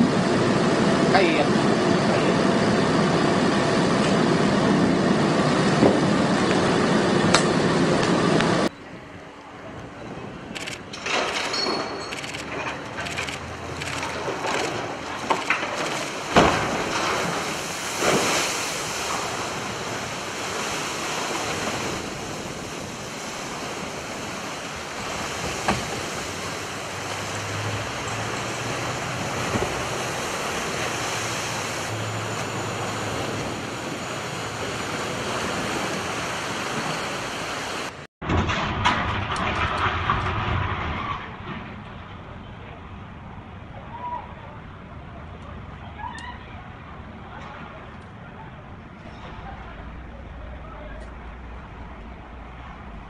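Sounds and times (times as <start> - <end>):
water splashing and churning: 11.2 - 38.1.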